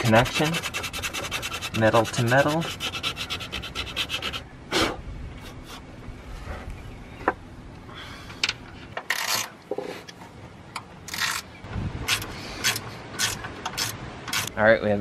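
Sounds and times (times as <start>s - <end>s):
scratchy strokes: 0.0s - 4.4s
metallic clicks and scraping: 8.3s - 14.6s.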